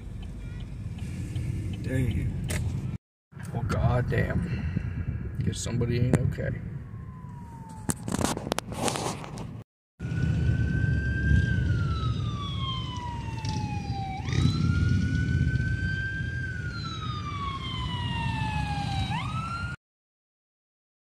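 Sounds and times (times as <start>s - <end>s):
steady low rumble: 0.0s - 7.2s
emergency siren wailing: 6.7s - 8.6s, 10.0s - 19.8s.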